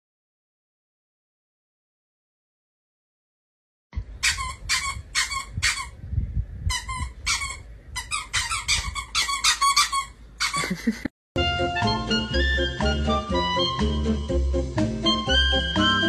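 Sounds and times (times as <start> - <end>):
small animal squeaking: 4.2 - 6.0, 6.7 - 10.7.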